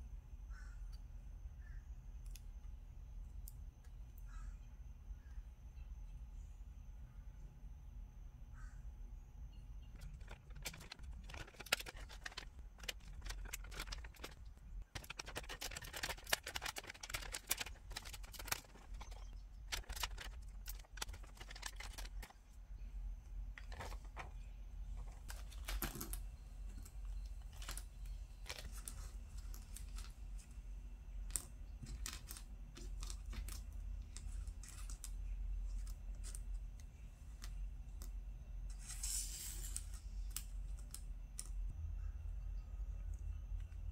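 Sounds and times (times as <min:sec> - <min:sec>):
low steady hum: 0:00.0 - 0:43.9
small plastic items clicking: 0:09.9 - 0:22.4, 0:31.2 - 0:38.2.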